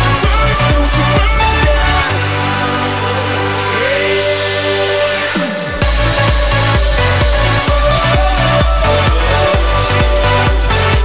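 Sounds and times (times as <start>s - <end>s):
heavy kick drum beat: 0.0s - 2.1s, 5.7s - 11.0s
electronic dance music: 0.0s - 11.0s
falling bass sweep: 0.0s - 11.0s.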